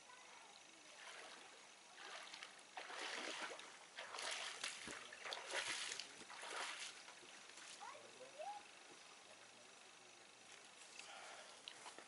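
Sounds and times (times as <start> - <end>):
water splashing: 1.0 - 7.8.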